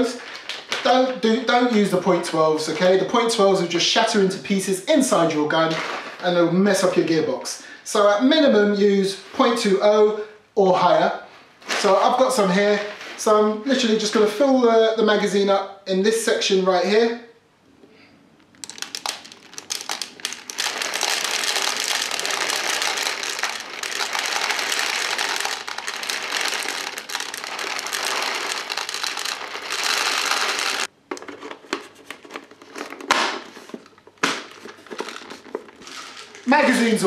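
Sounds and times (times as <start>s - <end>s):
plastic bag crinkling: 0.0s - 2.0s, 18.5s - 30.9s, 32.0s - 37.0s
loose pellets clicking: 18.4s - 30.9s
pellets pouring rattling hiss: 18.6s - 30.9s, 35.0s - 36.9s.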